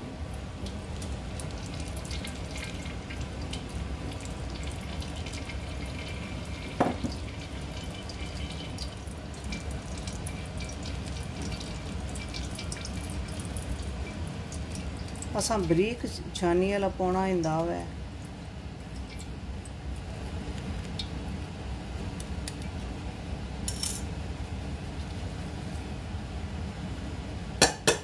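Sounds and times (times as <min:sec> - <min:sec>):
steady low hum: 0:00.0 - 0:28.0
butter trickling through strainer: 0:00.5 - 0:16.0.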